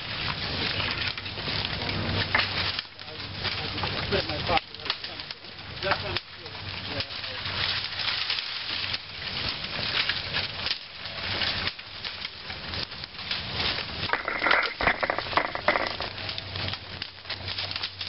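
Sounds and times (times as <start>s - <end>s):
dry leaves crackling and rustling: 0.0s - 18.0s.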